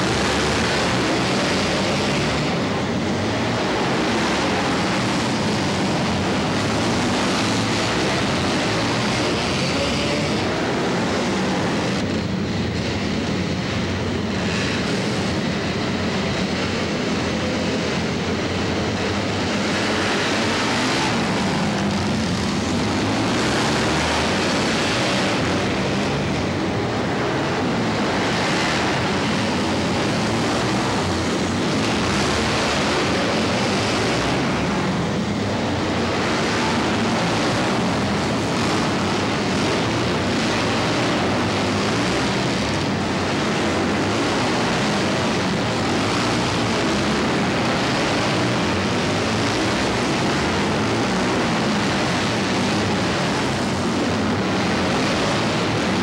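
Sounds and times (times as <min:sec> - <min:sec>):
motorcycle engines revving: 0:00.0 - 0:56.0.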